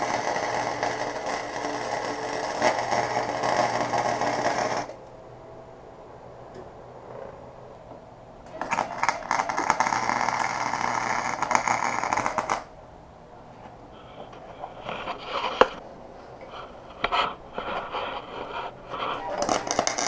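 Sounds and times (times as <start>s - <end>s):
arc welding crackling: 0.0s - 5.1s, 8.4s - 12.7s, 16.5s - 20.0s
scraping and handling noises: 13.5s - 20.0s.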